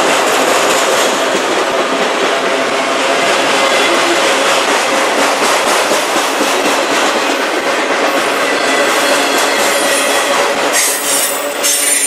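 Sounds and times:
train wheels on rails: 0.0 - 12.0.

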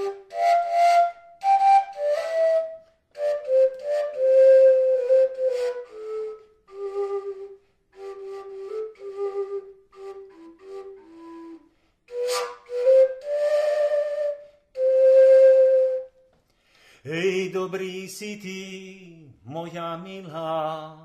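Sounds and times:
overtone flute playing folk tune: 0.0 - 16.3.

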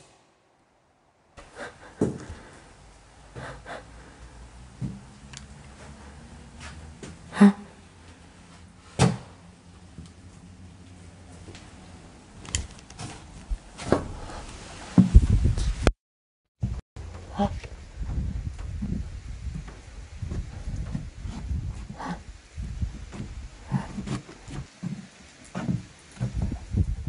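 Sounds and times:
footsteps on wooden floorboards: 18.1 - 22.2, 22.9 - 26.7.

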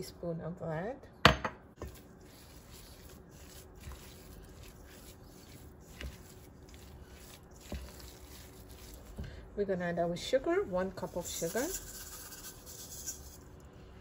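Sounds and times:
spatula scraping in bowl: 1.8 - 9.2, 11.0 - 13.4.

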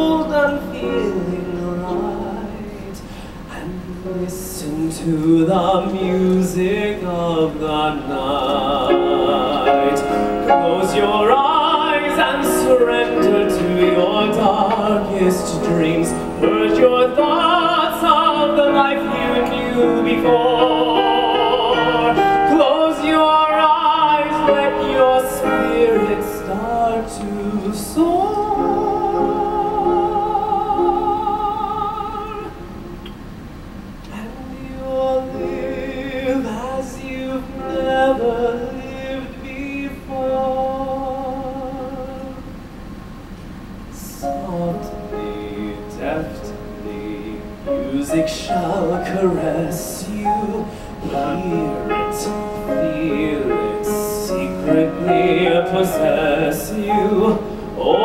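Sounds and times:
person singing operatically: 0.0 - 32.9, 34.1 - 42.4, 44.0 - 58.0
musical accompaniment: 8.0 - 33.3, 44.2 - 58.0.

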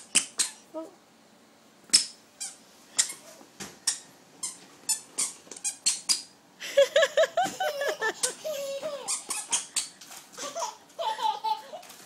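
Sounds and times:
squeaky shoes squeaking: 0.0 - 0.6, 1.9 - 6.3, 8.8 - 10.1.

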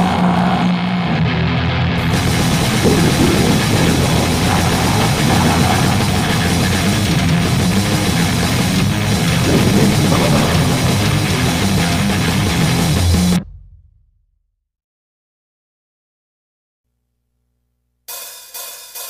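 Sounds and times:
distorted guitar: 0.0 - 13.4
drums: 0.1 - 13.8, 18.1 - 19.0.

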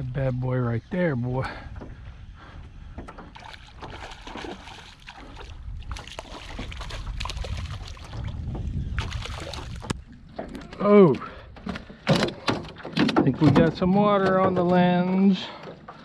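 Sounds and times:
wind buffeting microphone: 0.0 - 15.6
fish splashing in water: 3.4 - 8.4.

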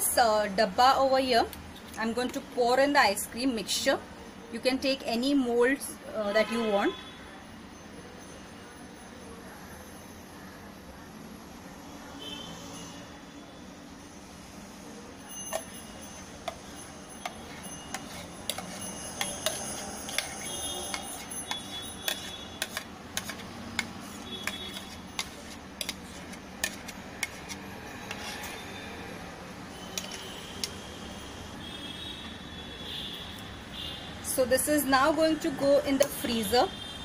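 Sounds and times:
spatula scraping steel jar: 15.5 - 28.9, 29.8 - 30.4.

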